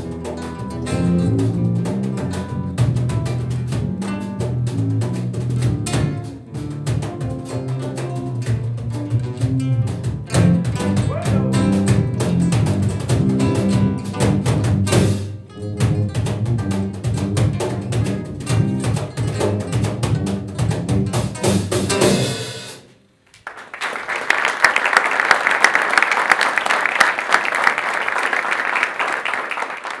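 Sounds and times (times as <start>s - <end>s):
live trio playing: 0.0s - 23.0s
audience applause: 23.4s - 30.0s.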